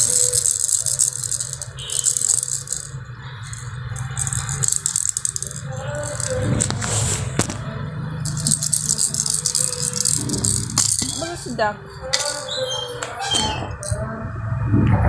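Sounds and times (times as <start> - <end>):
plastic baby rattle shaken: 0.0 - 6.9, 8.2 - 12.5, 13.7 - 14.0.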